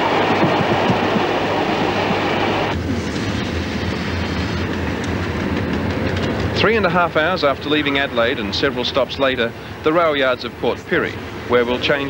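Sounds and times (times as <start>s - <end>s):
low hum: 0.0s - 7.6s
train wheel and track noise: 0.0s - 12.0s.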